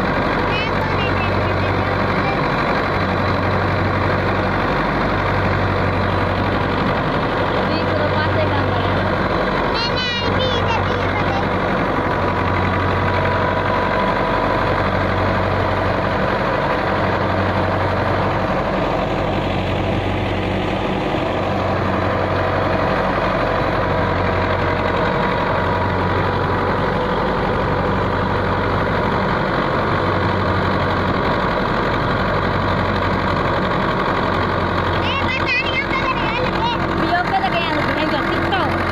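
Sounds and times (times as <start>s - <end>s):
threshing machine whirring: 0.0s - 38.9s
tractor diesel engine running: 0.0s - 38.9s
low hum: 10.4s - 33.5s.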